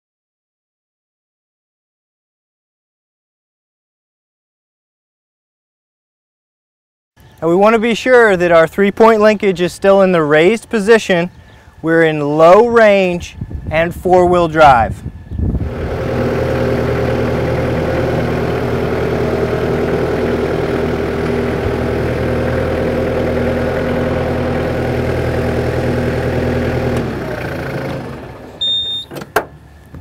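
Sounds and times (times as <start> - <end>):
tractor diesel engine running: 12.3 - 30.0
short high tone: 28.6 - 29.1.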